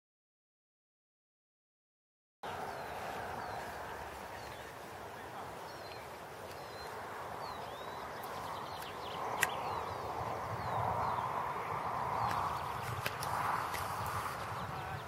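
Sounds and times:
sheep hooves pattering on grass: 2.5s - 9.3s, 12.2s - 14.7s
sharp click: 8.8s - 9.7s.

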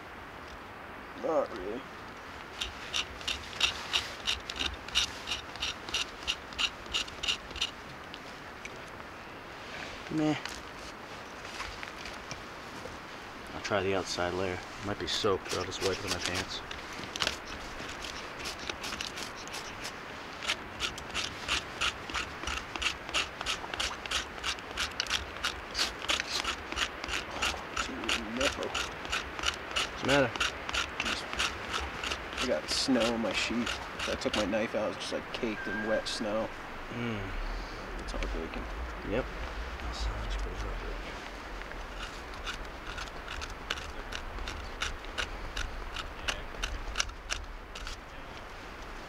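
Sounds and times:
hand tool rasping wood: 2.5s - 7.8s, 15.0s - 34.6s, 41.9s - 48.0s
knife scraping wood: 2.5s - 7.8s, 14.7s - 34.6s, 41.7s - 48.0s.

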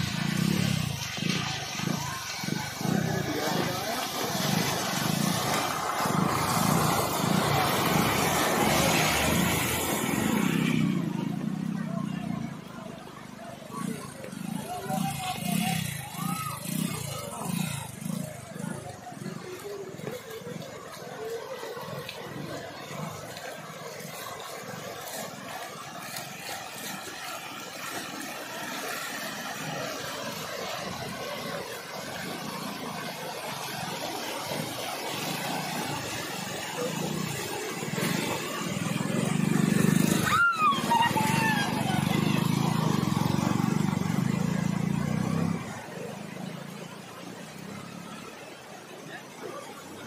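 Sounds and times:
bus engine rumbling: 0.0s - 49.9s
floodwater splashing: 0.0s - 50.0s.

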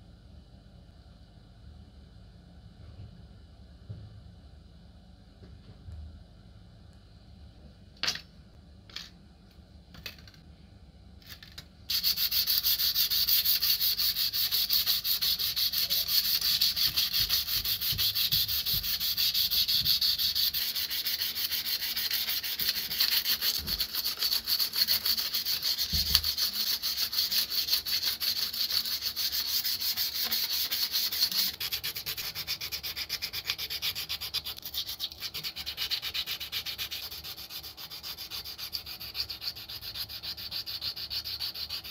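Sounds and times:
sandpaper rubbing metal: 11.9s - 41.9s.

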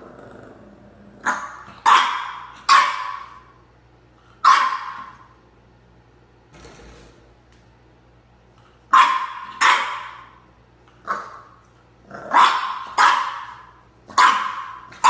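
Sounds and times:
puppy barking sharply: 1.2s - 3.5s, 4.4s - 5.3s, 8.9s - 10.4s, 12.3s - 15.0s.

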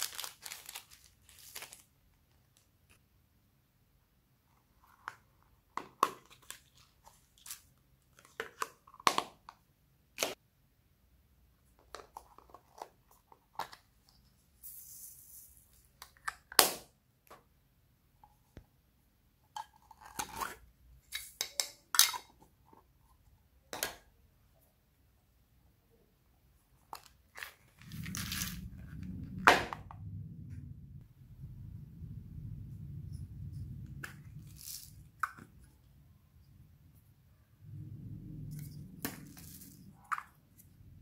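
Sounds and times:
plastic lids clicking and snapping: 8.2s - 9.6s.

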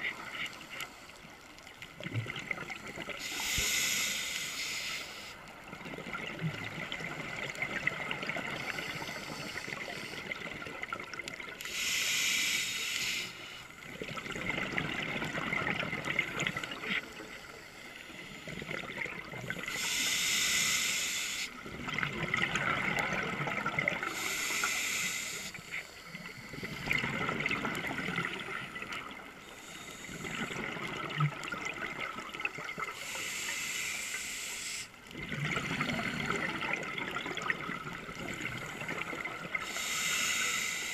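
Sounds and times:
hissing regulator inhalations: 3.0s - 5.6s, 11.6s - 13.8s, 19.6s - 21.6s, 24.0s - 26.9s, 29.0s - 30.7s, 32.8s - 35.0s, 38.5s - 40.9s
bubbling exhalations underwater: 35.2s - 39.6s.

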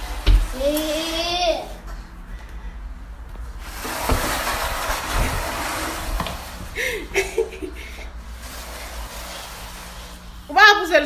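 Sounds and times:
child's vocal sound: 0.5s - 1.9s
plastic crate scraping on tile floor: 3.6s - 10.6s.

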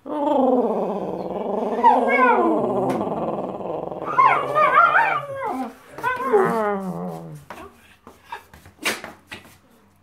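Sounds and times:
dog howling: 0.2s - 7.4s.

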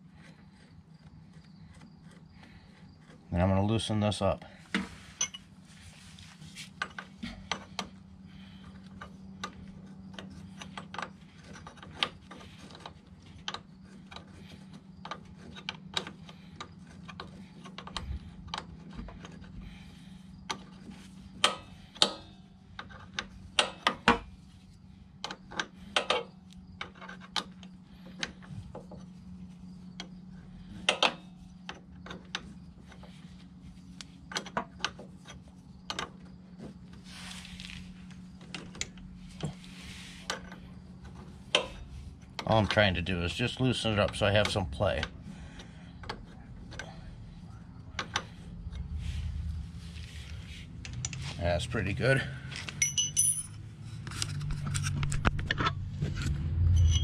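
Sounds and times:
low hum: 43.0s - 57.0s.

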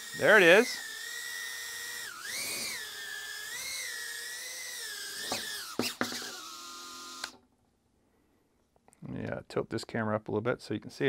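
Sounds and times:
drone motors whining: 0.0s - 7.4s.

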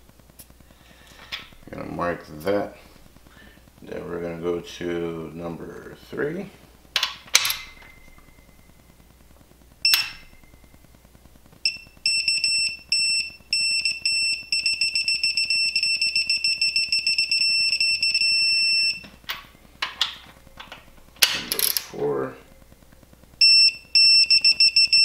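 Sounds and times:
torque wrench beeping: 23.4s - 25.0s.

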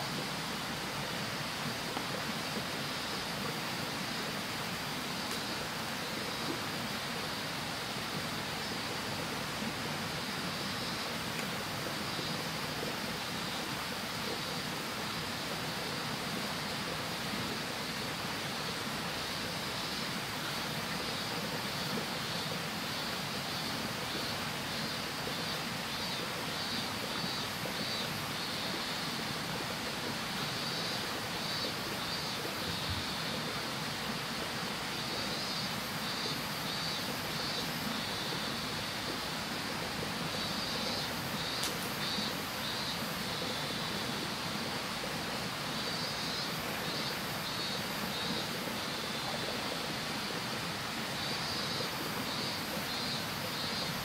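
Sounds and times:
insects chirping in trills: 0.0s - 54.0s
steady outdoor hiss: 0.0s - 54.0s.

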